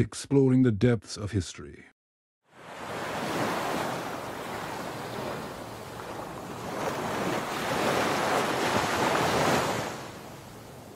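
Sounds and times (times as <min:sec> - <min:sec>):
ocean surf washing in: 0:02.5 - 0:10.9.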